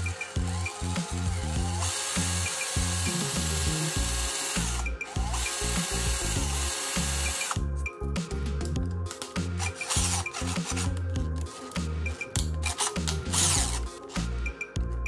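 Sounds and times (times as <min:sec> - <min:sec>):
cordless drill running: 0:00.0 - 0:07.6, 0:12.8 - 0:13.8.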